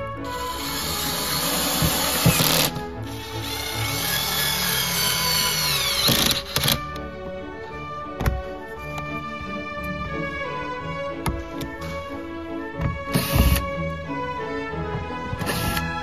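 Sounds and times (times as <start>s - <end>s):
background music: 0.0s - 16.0s
power driver whirring: 0.2s - 7.0s, 15.2s - 16.0s.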